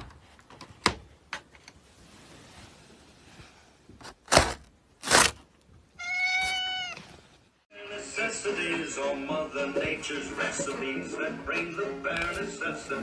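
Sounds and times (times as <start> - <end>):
cat meowing: 6.0 - 7.2.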